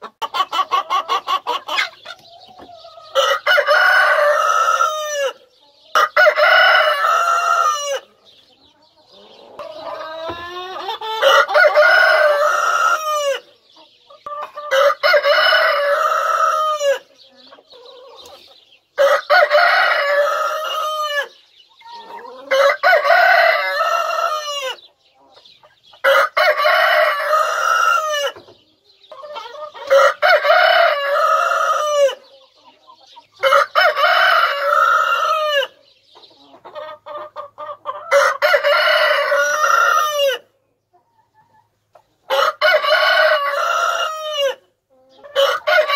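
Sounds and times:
hens clucking softly: 0:00.0 - 0:45.9
rooster crowing: 0:03.1 - 0:05.4, 0:11.2 - 0:13.4, 0:19.0 - 0:21.4, 0:22.5 - 0:24.8, 0:38.1 - 0:40.4, 0:42.3 - 0:44.6, 0:45.4 - 0:45.9.

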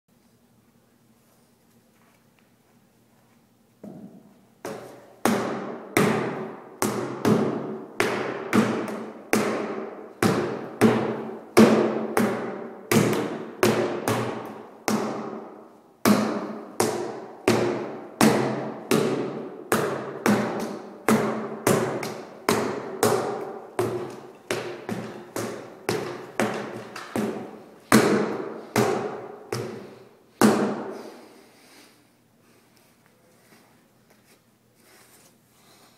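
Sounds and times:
cane whacking rubber tires: 0:04.6 - 0:31.3.

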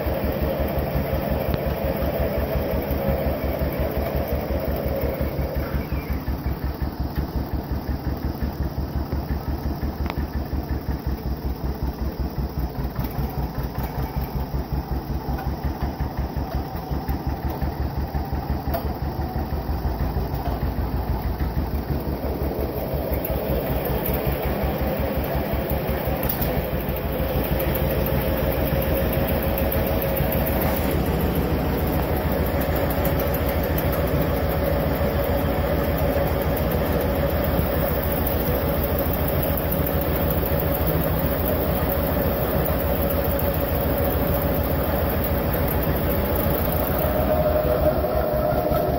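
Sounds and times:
diesel engine running: 0:00.0 - 0:48.9.

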